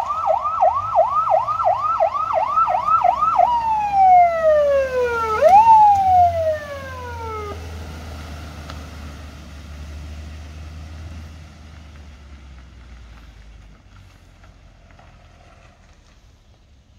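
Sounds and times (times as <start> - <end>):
electronic siren sweeping: 0.0 - 7.8
car engine and tyre rumble: 0.0 - 16.9.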